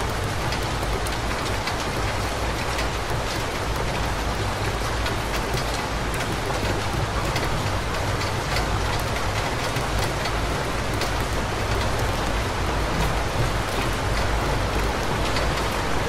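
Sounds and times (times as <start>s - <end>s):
rain on street: 0.0s - 16.0s.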